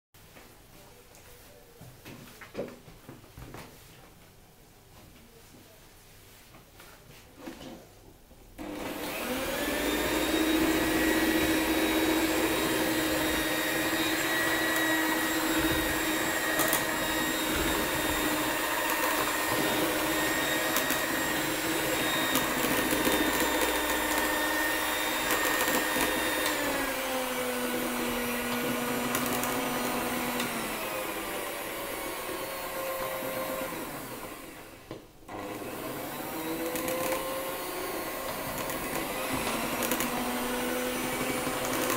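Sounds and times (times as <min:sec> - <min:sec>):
electric hand mixer whining: 0:08.6 - 0:41.9.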